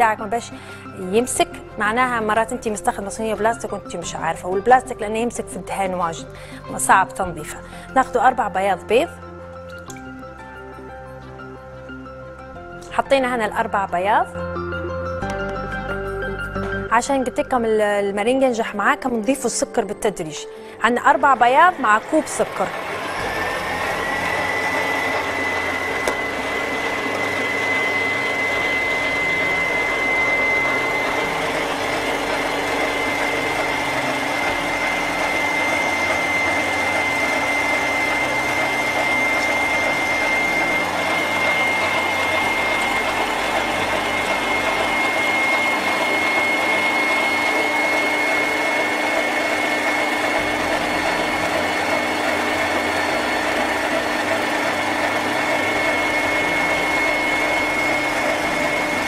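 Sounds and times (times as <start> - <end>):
stand mixer whisking: 21.0 - 59.0.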